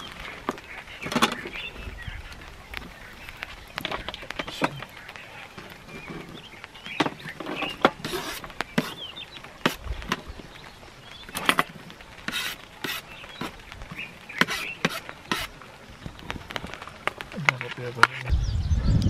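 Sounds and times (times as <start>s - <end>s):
blade scraping across board: 7.8s - 9.0s, 12.3s - 13.6s, 14.4s - 15.5s.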